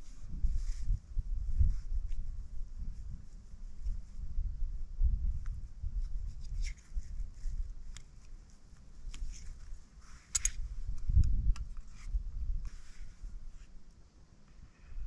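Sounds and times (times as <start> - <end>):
wind rumbling on microphone: 0.0 - 14.0
camping kit clicks and scrapes: 6.4 - 13.7.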